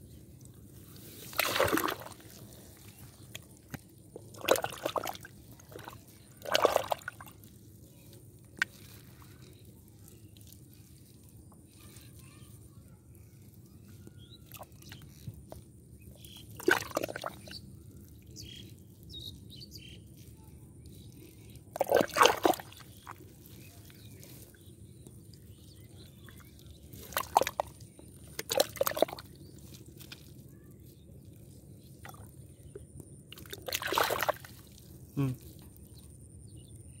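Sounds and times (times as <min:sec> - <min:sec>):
sloshing in muddy water: 0:00.3 - 0:11.1, 0:16.0 - 0:18.7, 0:20.9 - 0:30.4, 0:31.3 - 0:36.0.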